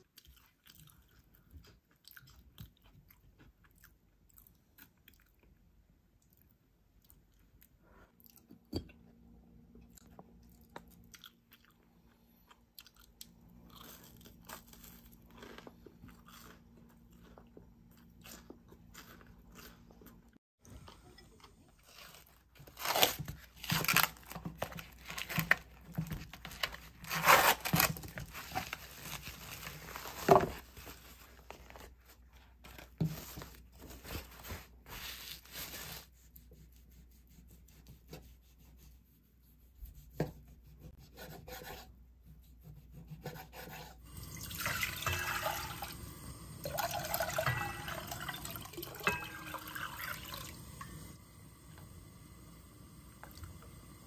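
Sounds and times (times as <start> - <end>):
water pouring into a pot: 44.1 - 51.2.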